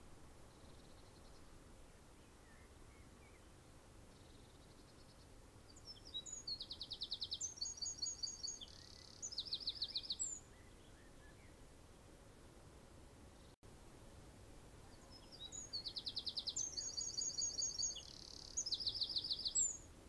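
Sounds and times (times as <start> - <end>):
faint background hiss: 0.0 - 20.0
songbird trilling and chirping: 4.1 - 11.5, 14.8 - 19.9.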